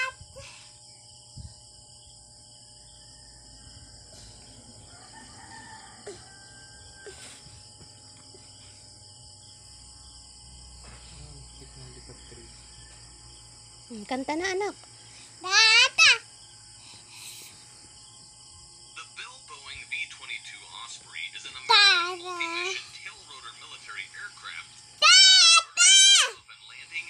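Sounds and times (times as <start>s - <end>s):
high-pitched insect drone: 0.0s - 27.0s
distant rooster crowing: 2.8s - 8.4s, 11.5s - 13.7s.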